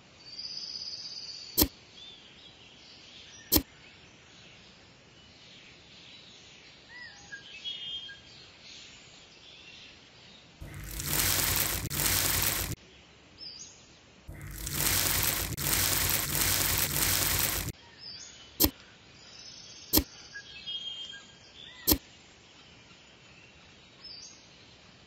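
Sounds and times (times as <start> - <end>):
faint birdsong: 0.0 - 10.6, 17.8 - 25.0
sand pouring into mixer drum: 10.6 - 12.8, 14.3 - 17.7.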